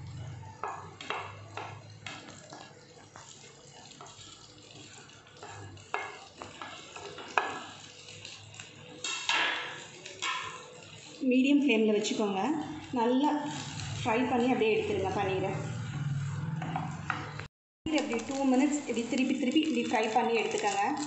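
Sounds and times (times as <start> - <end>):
butter sizzling: 0.0 - 21.0
food cubes knocking into pan: 0.6 - 2.4, 5.4 - 7.8, 9.0 - 10.8.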